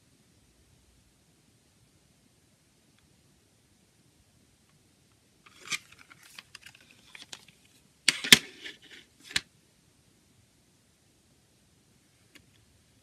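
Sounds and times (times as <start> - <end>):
plastic case clicks and rustle: 5.5 - 9.5
plastic clacks: 5.5 - 9.5.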